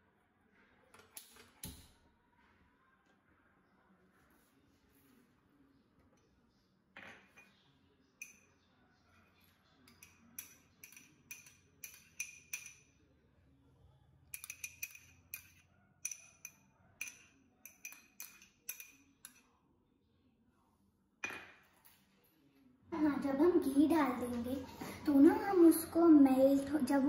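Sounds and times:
spoon clinking against glass bowl: 9.9 - 12.9, 14.3 - 19.5.

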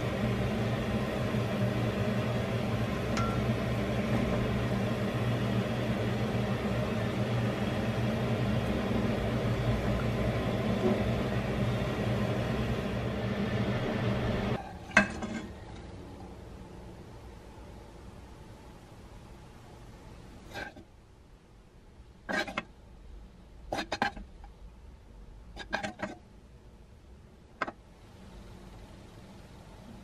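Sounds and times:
range hood fan humming: 0.0 - 30.0
dish clinking: 3.2 - 3.5.

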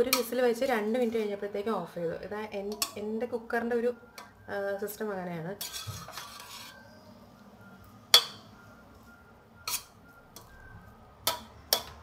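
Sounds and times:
metal spoon clinking on pot: 0.0 - 0.5, 2.7 - 3.1, 5.6 - 6.8, 8.1 - 8.5, 9.6 - 10.5, 11.2 - 12.0
quiet stirring of food: 5.6 - 6.8.

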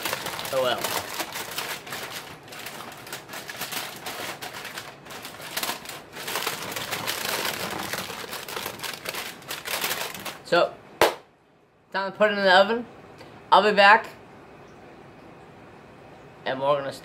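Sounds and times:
aluminium foil crinkling: 0.0 - 10.6.

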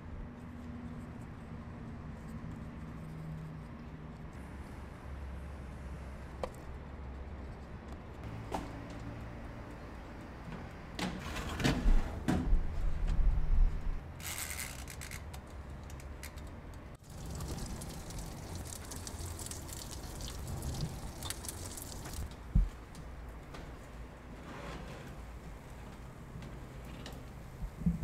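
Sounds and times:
steady low noise with crackling: 12.5 - 14.2, 15.3 - 24.5.

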